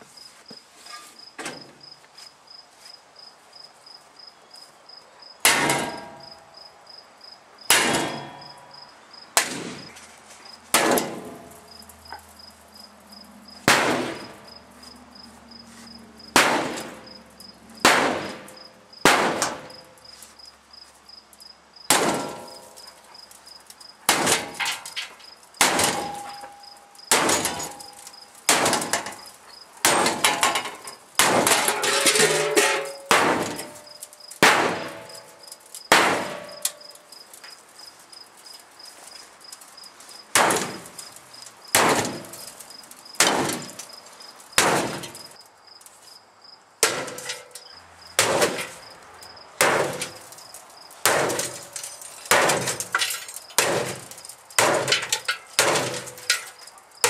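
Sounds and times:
crickets chirping: 0.0s - 10.7s, 11.3s - 57.0s
sledgehammer clanging on steel: 5.5s - 6.4s, 7.7s - 8.8s, 10.7s - 12.2s, 21.9s - 23.0s, 24.1s - 37.0s, 40.3s - 44.0s, 46.8s - 48.8s, 49.6s - 56.8s.

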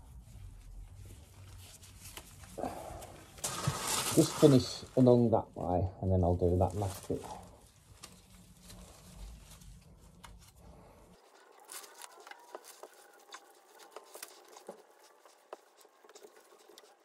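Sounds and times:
faint rustling: 0.0s - 17.0s
small clicks and scrapes: 7.9s - 17.0s.

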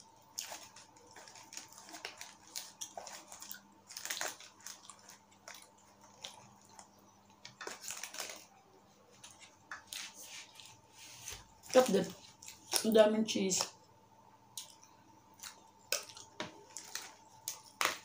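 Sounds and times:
chewing with mouth noises: 0.0s - 8.5s, 14.5s - 18.0s.

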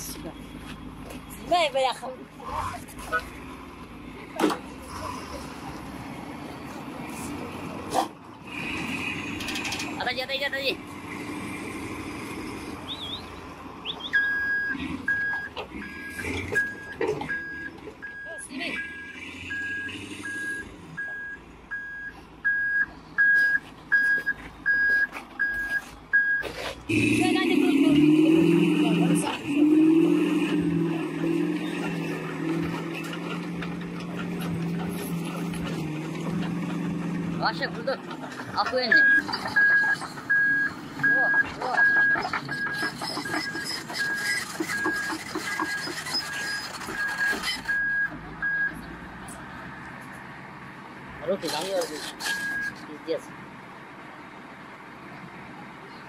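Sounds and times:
steel crawler tracks clanking: 0.0s - 50.3s, 51.2s - 53.4s
diesel engine running: 0.0s - 56.0s
reversing alarm beeping: 13.9s - 26.5s, 38.9s - 48.8s.

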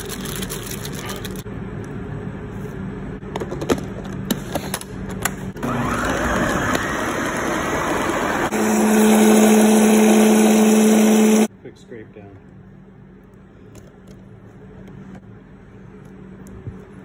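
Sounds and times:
blender motor running: 5.6s - 11.5s.

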